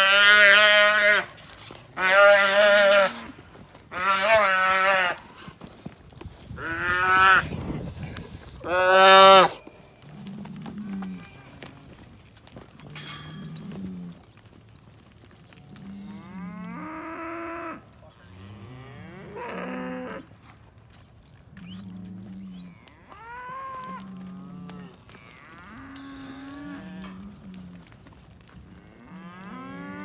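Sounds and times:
cattle mooing: 21.6s - 27.9s, 28.8s - 30.0s.

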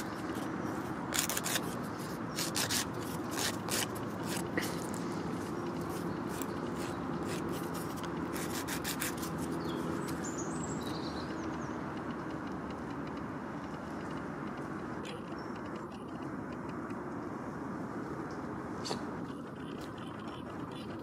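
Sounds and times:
nail file rasping on toenail: 0.0s - 10.2s
low background rumble: 0.0s - 21.0s.

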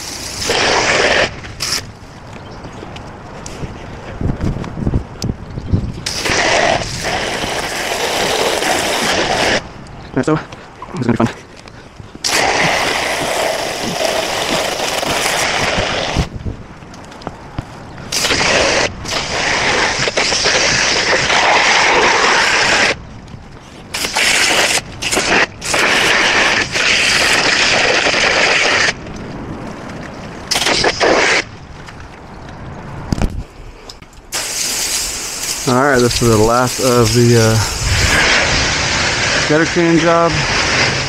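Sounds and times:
water spraying from hose: 0.0s - 1.9s, 6.0s - 9.6s, 12.2s - 16.3s, 18.1s - 23.0s, 23.9s - 29.0s, 30.5s - 31.5s, 34.3s - 41.0s.

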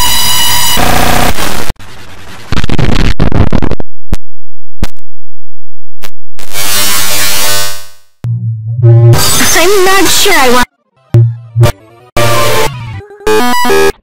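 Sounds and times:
clipped electronic buzzing noise: 0.0s - 9.6s.

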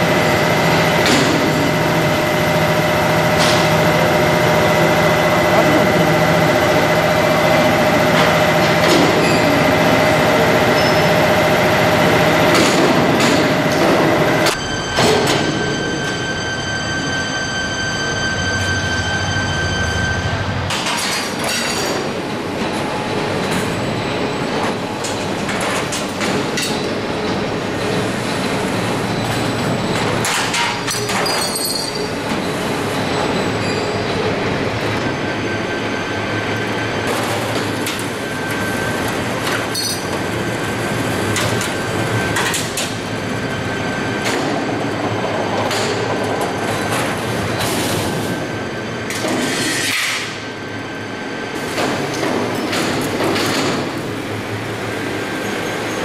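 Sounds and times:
high machine whine: 0.0s - 56.0s
machine din: 0.1s - 21.7s.

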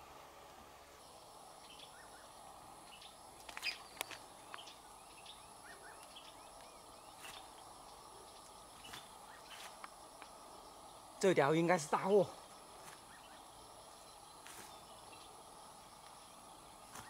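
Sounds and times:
insects hissing: 0.0s - 17.0s
small bird chirps: 1.6s - 9.8s, 12.2s - 16.2s.

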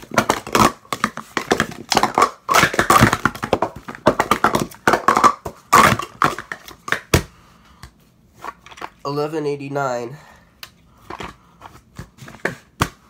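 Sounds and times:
plastic cups clacking: 0.0s - 7.3s.

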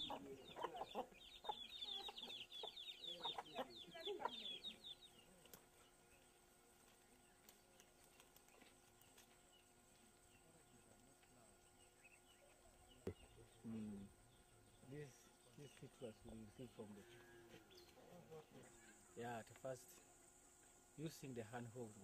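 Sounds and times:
hens clucking: 0.0s - 4.6s
chicks peeping: 0.0s - 5.1s.

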